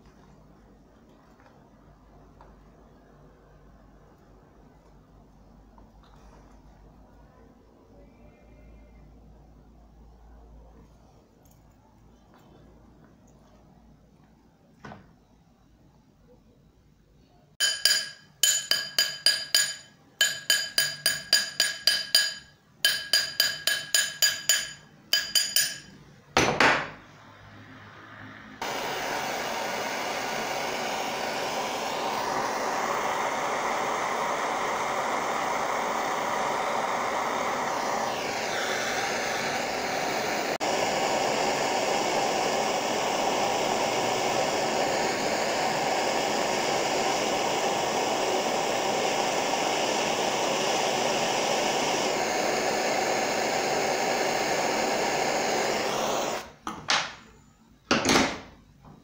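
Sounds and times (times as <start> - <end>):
gas torch hissing: 17.6 - 26.0, 28.6 - 56.7.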